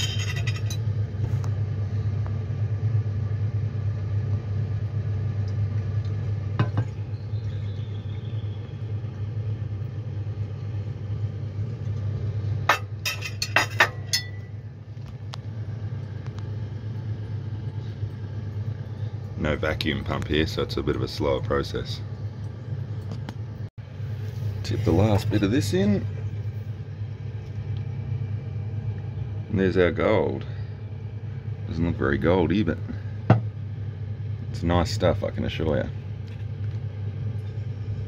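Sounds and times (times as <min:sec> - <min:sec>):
glassware clinking: 0:00.0 - 0:00.8, 0:12.7 - 0:14.4
steady low hum: 0:00.0 - 0:38.0.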